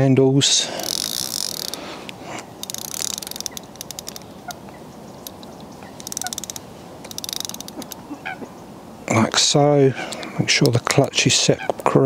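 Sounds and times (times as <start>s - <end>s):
fishing reel clutch ratcheting: 0.7s - 1.9s, 2.5s - 4.6s, 5.2s - 8.0s.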